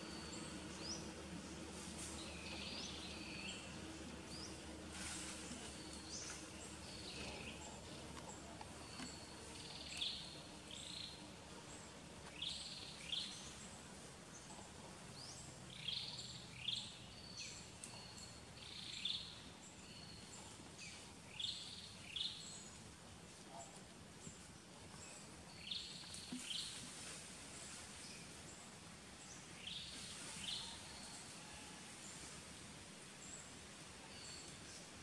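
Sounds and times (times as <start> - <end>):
faint forest background: 0.0 - 35.0.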